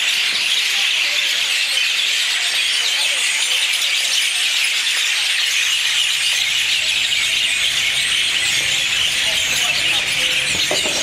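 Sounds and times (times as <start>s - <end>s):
flock of birds chirping: 0.0s - 11.0s.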